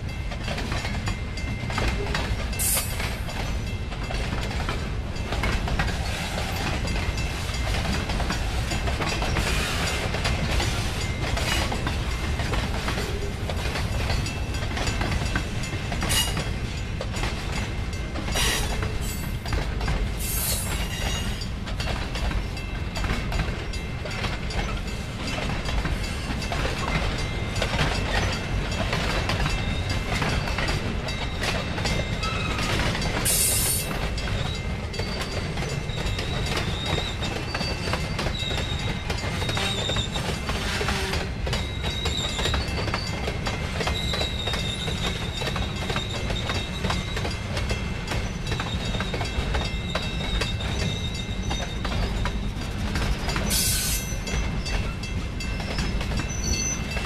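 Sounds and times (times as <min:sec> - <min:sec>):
freight train rumbling past: 0:00.0 - 0:57.0
wheels clacking over rail joints: 0:00.3 - 0:57.0
high wheel squeals: 0:32.2 - 0:47.4, 0:48.1 - 0:52.6, 0:53.4 - 0:57.0.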